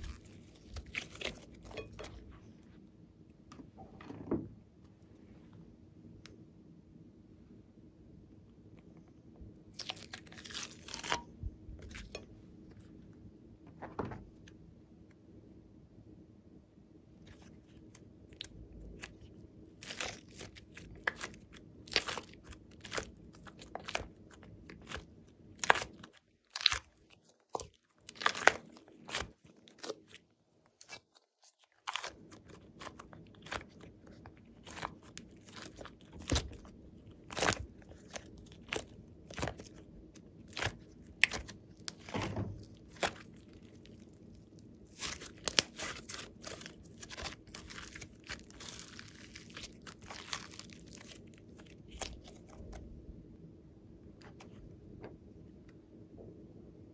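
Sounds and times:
hands squelching slime: 0:00.0 - 0:02.2, 0:18.4 - 0:52.7.

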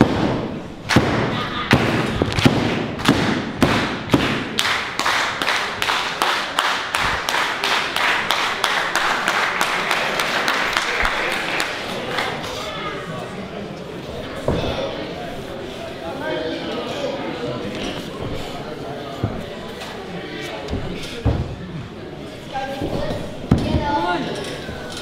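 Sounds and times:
crowd clapping in unison: 0:04.1 - 0:12.4
heavy thuds: 0:20.7 - 0:21.7.

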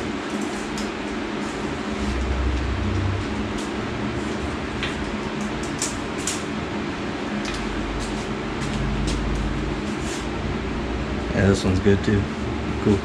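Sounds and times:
shop fan humming: 0:00.0 - 0:13.0.

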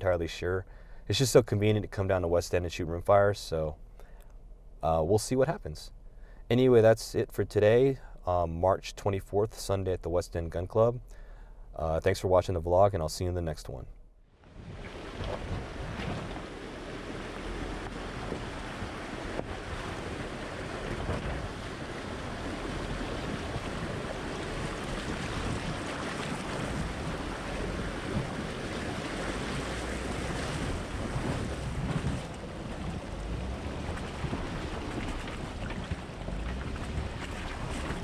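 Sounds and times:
low rumble: 0:14.5 - 0:38.0
water rushing and splashing: 0:14.5 - 0:38.0
wind buffeting microphone: 0:14.5 - 0:38.0.

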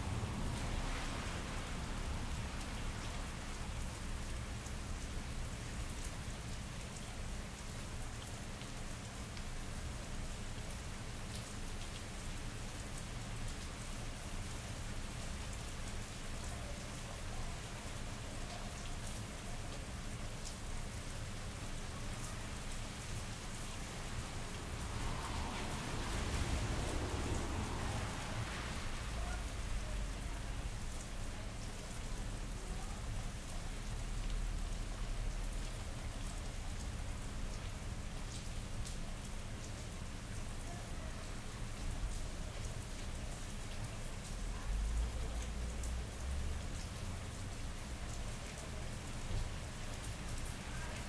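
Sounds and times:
low city rumble: 0:00.0 - 0:51.0
rain on wet pavement: 0:00.0 - 0:51.0.

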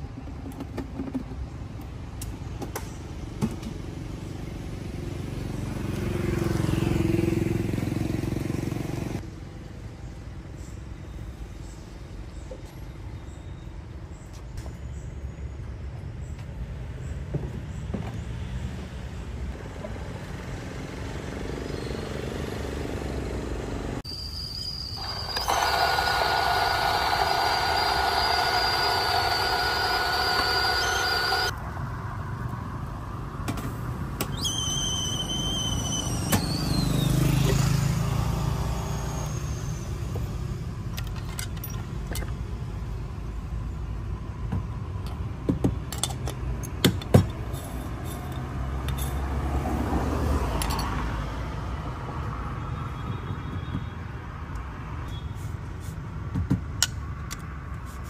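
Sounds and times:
low traffic rumble: 0:13.8 - 0:24.1, 0:24.9 - 0:58.0
electric coffee grinder running: 0:25.0 - 0:31.5.

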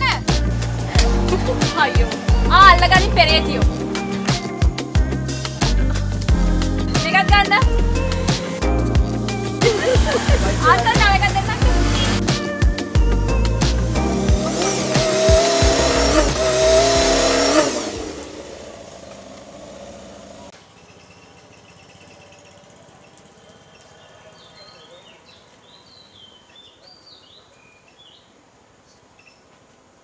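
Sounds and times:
motorcycle engine passing: 0:00.0 - 0:06.0, 0:07.0 - 0:12.5, 0:13.1 - 0:24.6
background music: 0:00.0 - 0:18.2
bird chirps: 0:20.6 - 0:28.3, 0:28.9 - 0:29.5.

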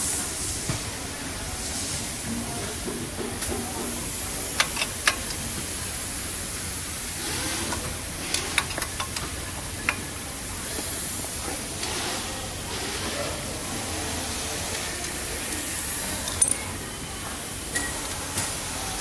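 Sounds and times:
sharp clicks and knocks: 0:07.7 - 0:10.1.

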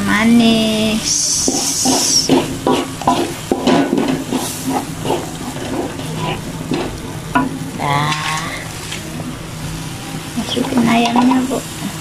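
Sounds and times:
paste sizzling in oil: 0:01.1 - 0:12.0
spatula scraping metal wok: 0:01.4 - 0:09.0.

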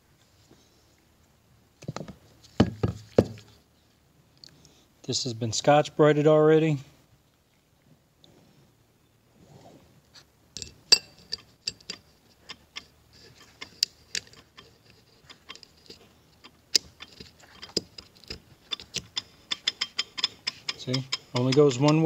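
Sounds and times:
roller clutch clicking: 0:11.2 - 0:22.0.

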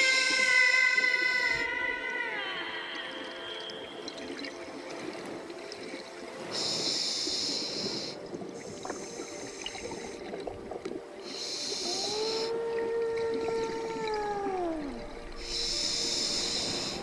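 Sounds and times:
regulator breathing underwater: 0:06.4 - 0:10.3, 0:11.2 - 0:12.6, 0:15.3 - 0:17.0
bubbles: 0:11.9 - 0:15.6.

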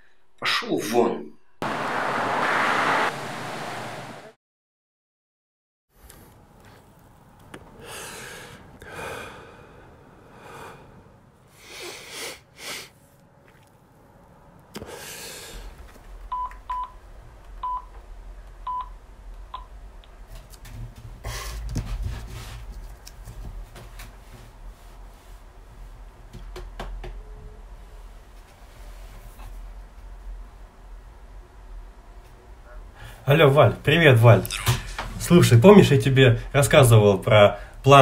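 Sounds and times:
heavy breathing: 0:07.8 - 0:13.1, 0:14.8 - 0:15.8, 0:21.2 - 0:21.8.

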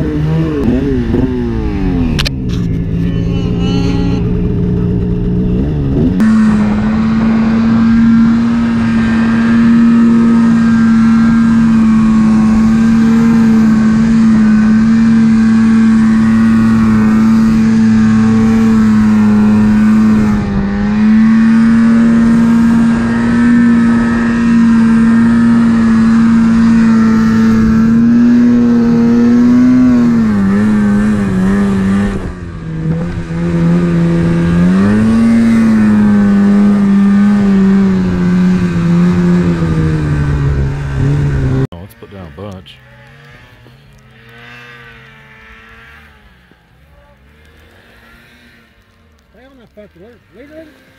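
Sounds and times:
snowmobile engine running hard: 0:00.0 - 0:48.6.

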